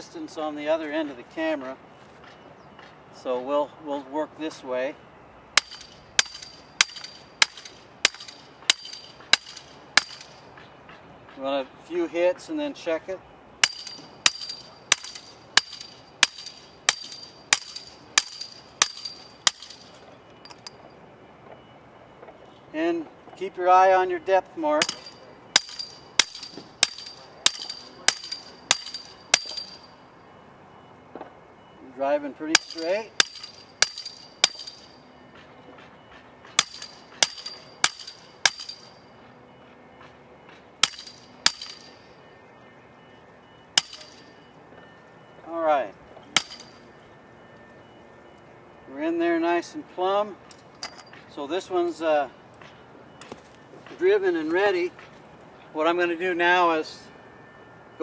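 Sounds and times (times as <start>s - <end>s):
post pounder striking metal post: 5.6s - 10.4s, 13.6s - 20.7s, 24.8s - 29.9s, 32.5s - 35.0s, 36.5s - 39.0s, 40.8s - 42.0s, 43.8s - 44.3s, 46.3s - 46.8s.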